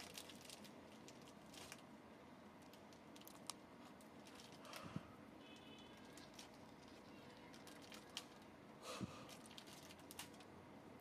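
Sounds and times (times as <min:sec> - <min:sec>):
light clicks and crackles: 0:02.6 - 0:04.9, 0:05.5 - 0:08.5, 0:09.3 - 0:10.5.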